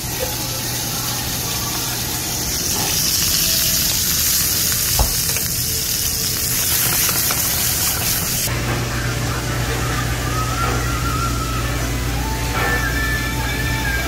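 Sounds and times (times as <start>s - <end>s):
shrimp sizzling in hot oil: 0.0s - 8.5s.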